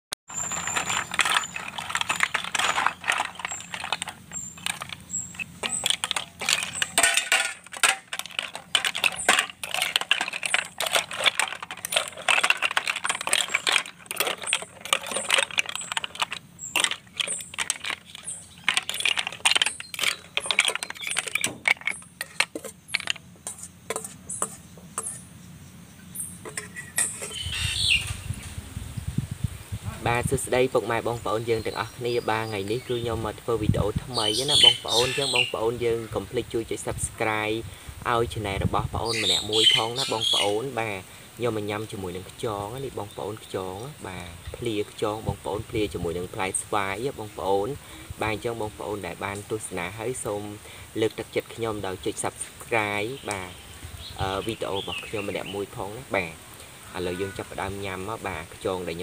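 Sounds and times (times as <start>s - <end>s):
snail shells clinking on metal: 0.3s - 25.2s, 33.6s - 35.7s, 39.1s - 41.0s.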